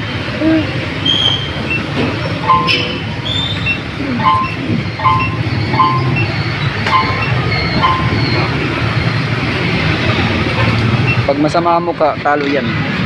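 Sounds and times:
low traffic rumble: 0.0 - 13.0
short two-tone beeps: 1.2 - 8.5.

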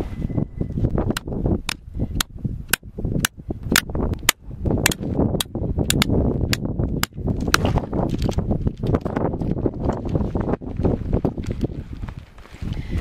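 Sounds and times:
wind rumbling on microphone: 0.0 - 13.0
hammer striking tent stake: 1.2 - 7.7.

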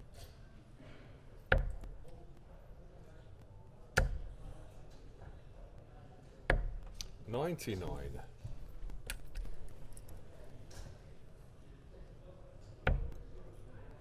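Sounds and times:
darts thudding into dartboard: 12.8 - 13.2.

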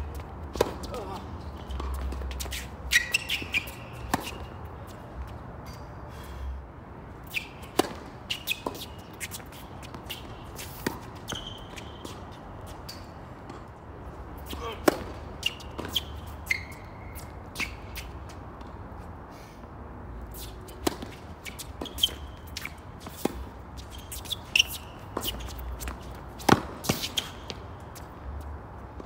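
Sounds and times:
tennis ball struck by racket: 0.5 - 1.0, 1.8 - 4.5, 7.3 - 8.9, 14.4 - 16.3, 20.8 - 23.5, 24.2 - 27.6
sneaker squeaks on court: 0.6 - 4.6, 7.3 - 13.2, 14.4 - 18.2, 20.4 - 27.6.

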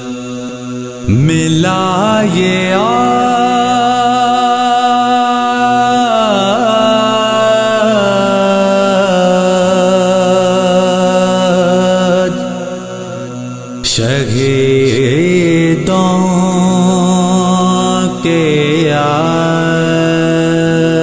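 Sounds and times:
man chanting a lament: 0.0 - 21.0.

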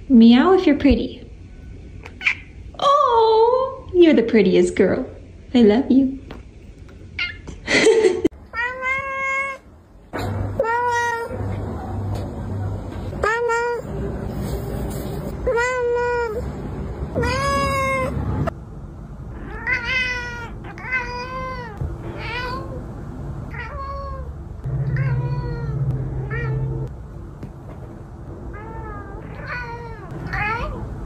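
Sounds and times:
cat meowing: 8.5 - 9.7, 17.1 - 18.2, 19.4 - 22.8, 23.5 - 26.9, 28.5 - 30.9.

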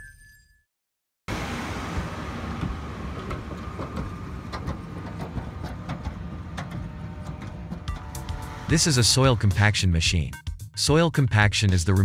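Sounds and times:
steel drums clanking: 1.3 - 9.6
tractor diesel engine running: 1.3 - 9.6.

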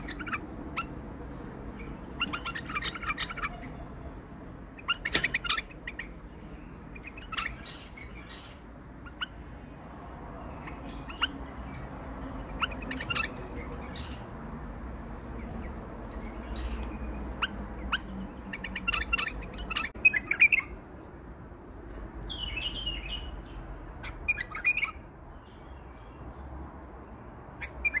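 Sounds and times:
bird chirping and warbling: 0.0 - 14.4, 15.1 - 21.1, 21.8 - 28.0.

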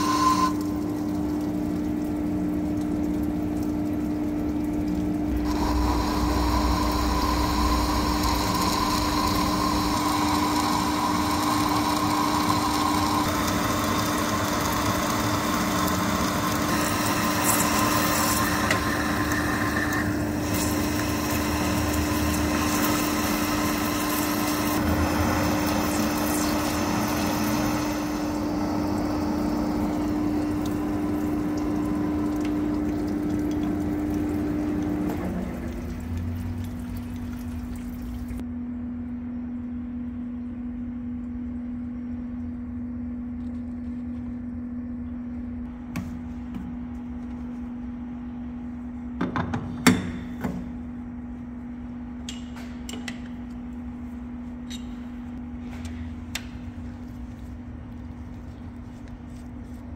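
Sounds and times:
coolant pouring: 0.0 - 38.4
lathe motor humming: 5.3 - 32.8
lathe boring into metal bar: 5.5 - 28.2.

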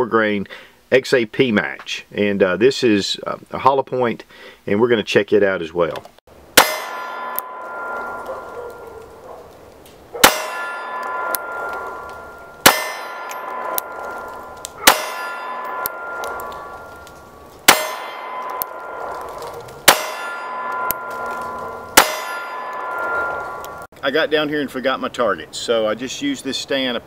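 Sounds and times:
pistol shots: 6.6 - 8.8, 10.2 - 12.0, 12.6 - 16.7, 17.6 - 23.5
steel plate ringing: 6.6 - 9.5, 10.2 - 23.9.

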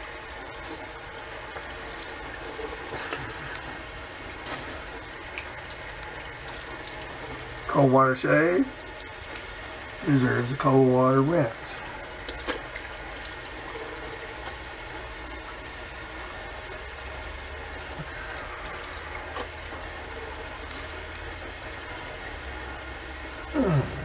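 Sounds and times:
tap water running into sink: 0.1 - 23.3
face rinsing splashes: 0.2 - 7.7, 11.5 - 16.6, 17.7 - 24.0.

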